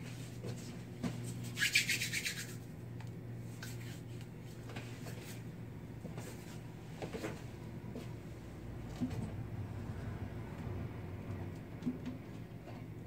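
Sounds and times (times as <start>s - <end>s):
hands rubbing together: 1.3s - 2.6s.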